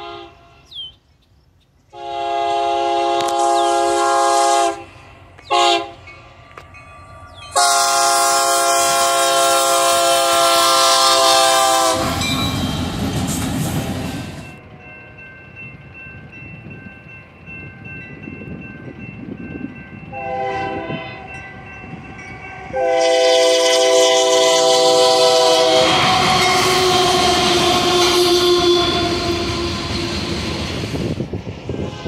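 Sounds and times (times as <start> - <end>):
locomotive air horn: 0.0 - 0.7, 2.0 - 6.1, 7.5 - 12.4, 20.1 - 22.0, 22.6 - 30.5
train passing on rails: 0.0 - 32.0
faint crossing bell ringing: 6.1 - 7.8, 12.2 - 12.9, 14.4 - 23.0.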